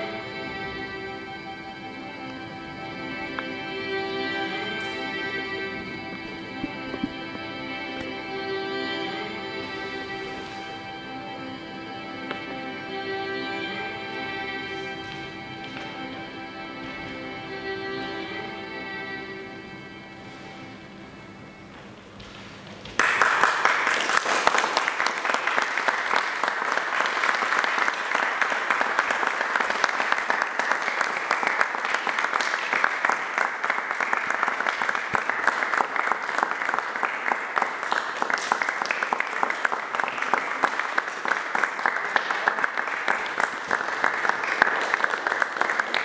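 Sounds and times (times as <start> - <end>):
audience applauding: 22.9 - 46.0.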